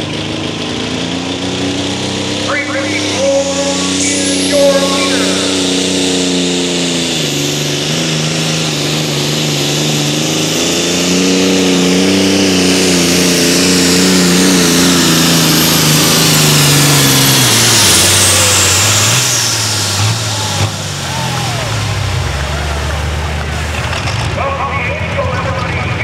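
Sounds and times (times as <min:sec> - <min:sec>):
tractor engine revving hard: 0:00.0 - 0:26.0
high whine: 0:01.6 - 0:22.2.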